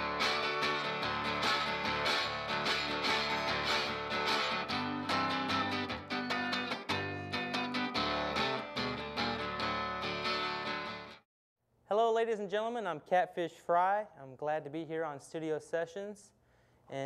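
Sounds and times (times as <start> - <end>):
blues acoustic guitar: 0.0 - 11.2.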